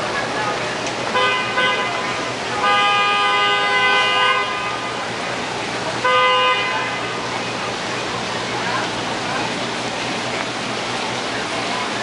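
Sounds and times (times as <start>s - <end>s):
steady background noise: 0.0s - 12.0s
vehicle horn honking: 1.1s - 5.0s, 6.0s - 7.2s.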